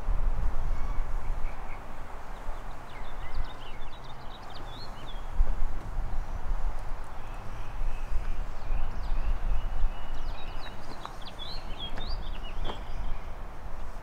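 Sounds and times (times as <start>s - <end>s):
small birds chirping: 0.6s - 14.0s
footsteps on asphalt: 10.5s - 13.1s.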